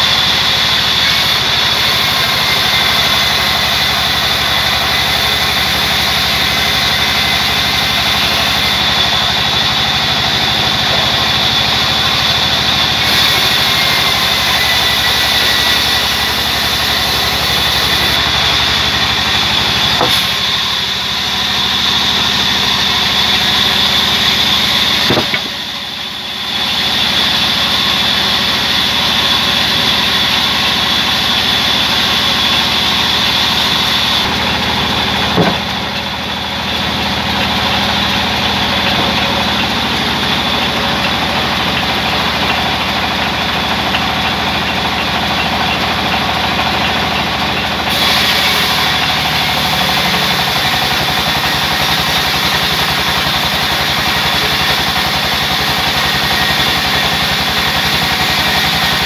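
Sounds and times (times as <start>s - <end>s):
band saw cutting log: 0.0s - 59.0s
brief knocks: 35.4s - 35.7s.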